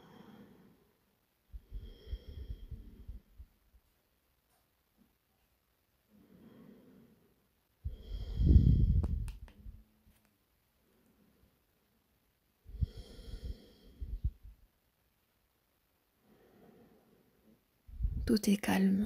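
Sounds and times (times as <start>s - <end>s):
woman breathing deeply: 0.0s - 3.5s, 6.1s - 9.2s, 12.7s - 14.5s, 16.2s - 18.2s.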